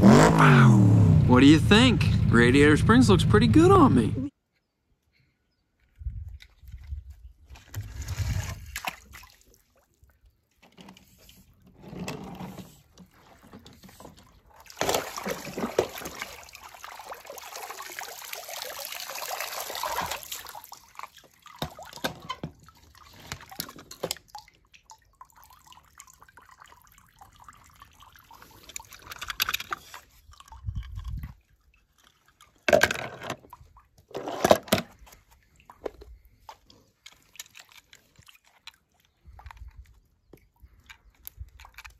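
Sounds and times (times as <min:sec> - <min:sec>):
pool water splashing: 0:00.0 - 0:04.3, 0:08.8 - 0:10.2, 0:12.4 - 0:29.1.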